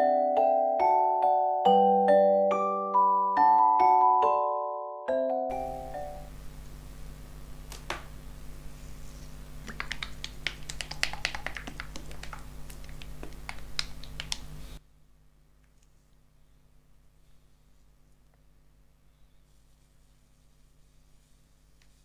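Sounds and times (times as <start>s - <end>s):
steady low hum: 5.5s - 22.0s.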